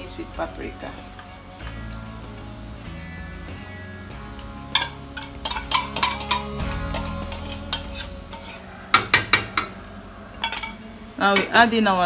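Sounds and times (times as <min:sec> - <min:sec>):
metal spoon clinking on metal bowl: 0:04.8 - 0:09.7, 0:10.4 - 0:11.8
spoon knocking on metal pot: 0:08.9 - 0:09.8.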